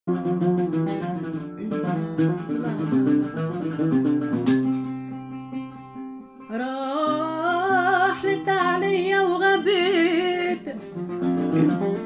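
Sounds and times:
oud melody plucked: 0.1s - 6.5s, 11.0s - 12.0s.

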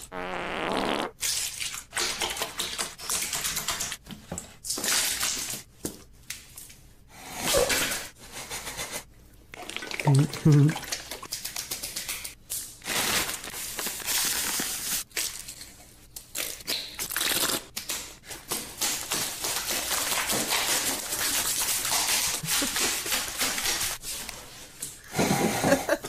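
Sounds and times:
food and oil squelching by hand: 18.8s - 24.6s.

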